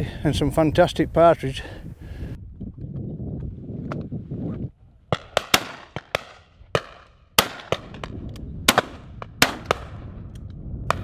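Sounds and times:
shotgun shots: 5.1 - 10.1.

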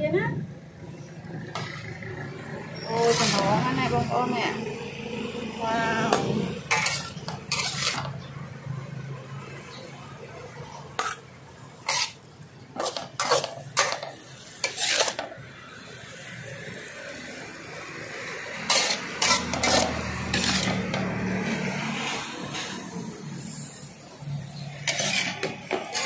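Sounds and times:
metal spatula scraping a wok: 2.8 - 4.3, 6.1 - 8.3, 10.9 - 15.3, 18.5 - 26.0.

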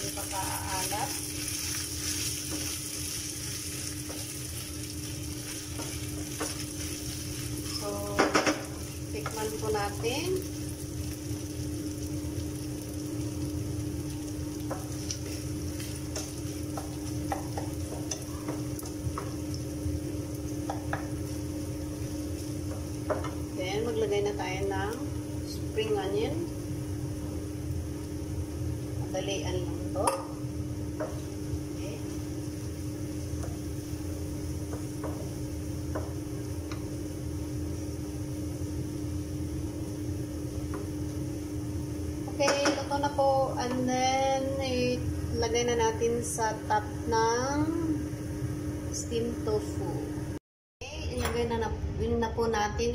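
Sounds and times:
meat sizzling in a pan: 0.0 - 25.2
low mechanical hum: 0.0 - 52.9
spatula tapping frying pan: 15.8 - 19.4.

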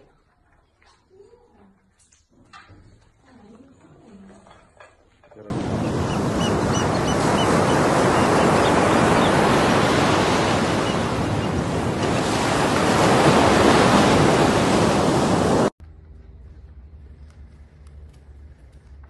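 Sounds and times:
churning sea water splashing: 5.5 - 15.7
wind buffeting microphone: 5.5 - 15.7.

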